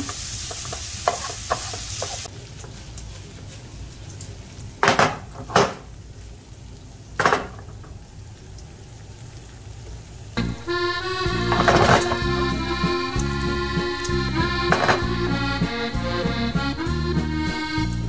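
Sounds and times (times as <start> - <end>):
meat sizzling in frying pan: 0.0 - 16.0
pan scraping on stove: 10.4 - 16.4
tongs clicking against pan: 13.1 - 14.2.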